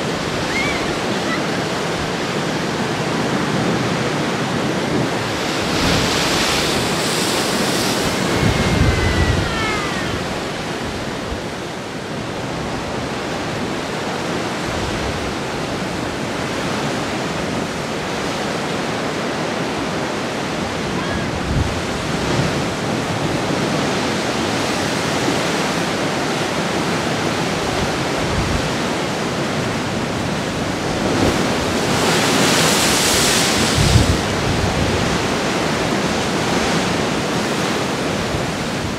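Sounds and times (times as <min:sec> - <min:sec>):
low thuds of heavy waves: 0:00.0 - 0:13.6, 0:27.8 - 0:38.9
ocean surf on rocks: 0:00.0 - 0:38.9.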